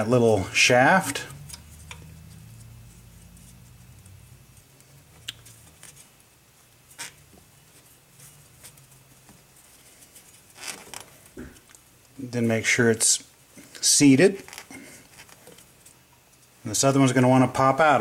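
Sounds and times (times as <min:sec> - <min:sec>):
faint handling noises: 0:00.0 - 0:18.0
low hum: 0:00.3 - 0:05.9.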